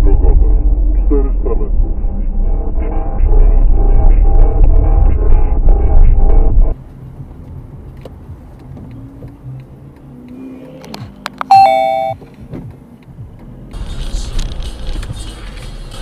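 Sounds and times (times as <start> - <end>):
car road noise: 0.0 - 16.0
two-note chime: 11.5 - 12.2.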